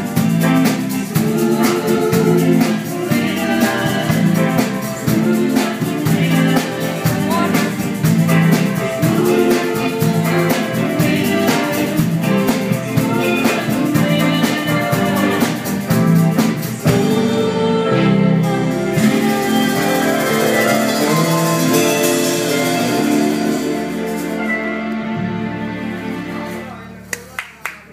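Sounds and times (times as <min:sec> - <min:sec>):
drum beat: 0:00.0 - 0:17.2
man singing: 0:00.0 - 0:24.5
keyboard chords: 0:00.0 - 0:27.4
woman singing: 0:00.1 - 0:24.5.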